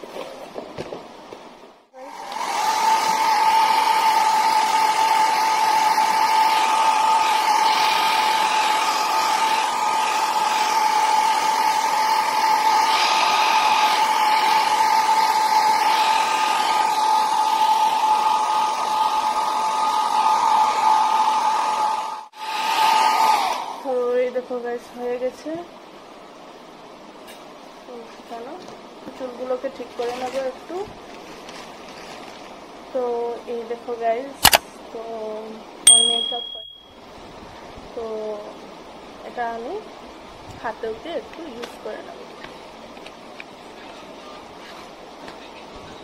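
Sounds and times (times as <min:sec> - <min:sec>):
hair dryer running: 0:02.0 - 0:24.0.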